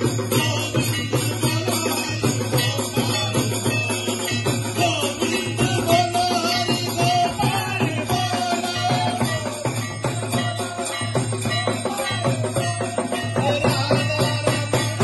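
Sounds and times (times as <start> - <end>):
percussion: 0.0 - 15.0
group singing a hymn: 5.2 - 13.2.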